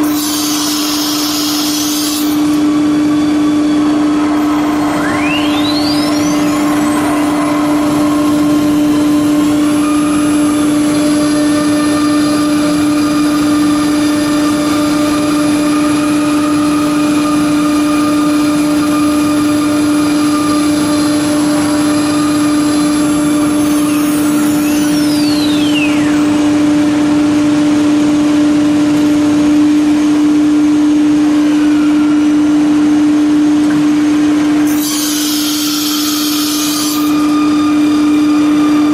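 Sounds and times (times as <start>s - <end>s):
wood cutting hiss: 0.0s - 2.6s, 34.7s - 37.2s
router motor whine: 0.0s - 27.0s
high whine sweeping: 0.8s - 34.7s.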